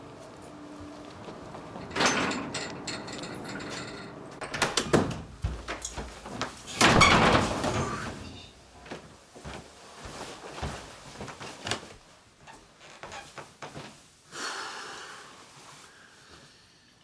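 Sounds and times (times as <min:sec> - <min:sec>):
footsteps on floor: 0:05.2 - 0:06.8, 0:08.7 - 0:14.0.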